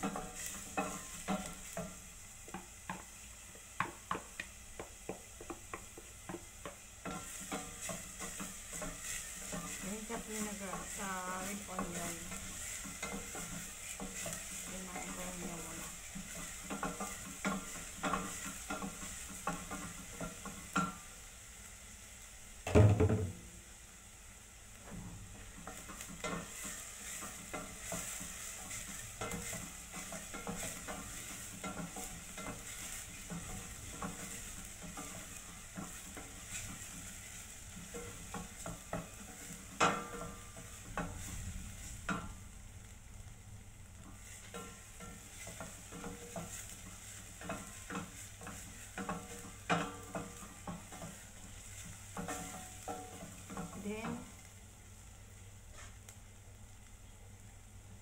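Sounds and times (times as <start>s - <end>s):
frying sizzle: 0.0s - 58.0s
spatula scraping in a pot: 7.0s - 21.0s, 25.6s - 42.4s, 44.0s - 54.4s.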